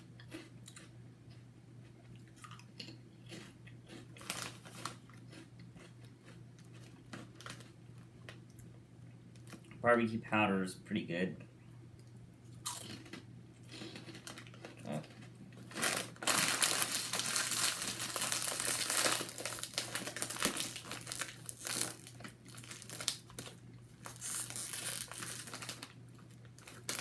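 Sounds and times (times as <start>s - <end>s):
plastic bag crinkling: 4.2s - 5.0s, 13.8s - 27.0s.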